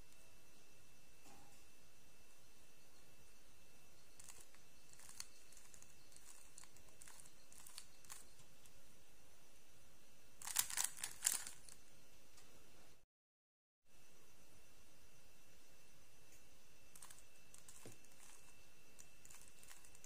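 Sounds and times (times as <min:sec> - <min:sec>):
plastic puzzle cube clicking: 0:10.4 - 0:11.6.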